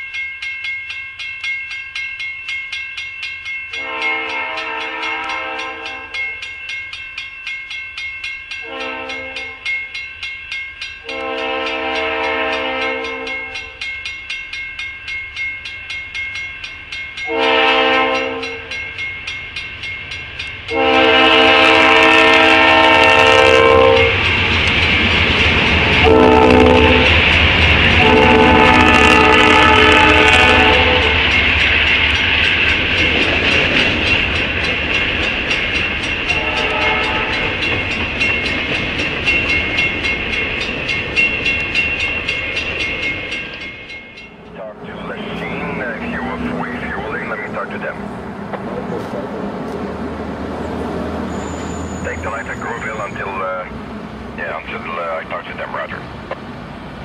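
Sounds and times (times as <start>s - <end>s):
crossing bell dinging: 0.0s - 49.2s, 50.6s - 53.8s
train rumbling and clattering past: 0.0s - 57.0s
locomotive air horn blasts: 3.8s - 6.2s, 8.6s - 9.6s, 11.0s - 13.7s, 17.3s - 18.7s, 20.7s - 24.2s, 26.0s - 27.2s, 28.0s - 31.3s, 36.3s - 37.5s.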